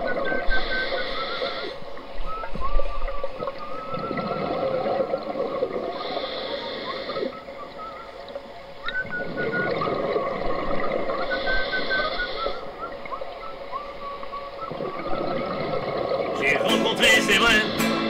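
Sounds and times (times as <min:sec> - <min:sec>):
underwater bubbling: 0:00.0 - 0:16.4
wavering whistle-like tones: 0:00.0 - 0:18.0
scuba regulator inhalation hiss: 0:05.9 - 0:07.3.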